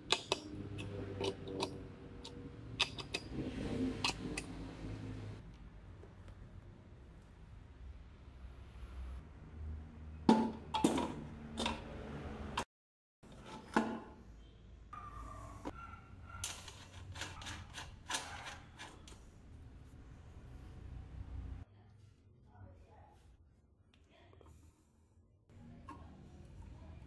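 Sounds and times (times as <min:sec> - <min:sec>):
wheel whirring on axle: 0:00.0 - 0:05.4.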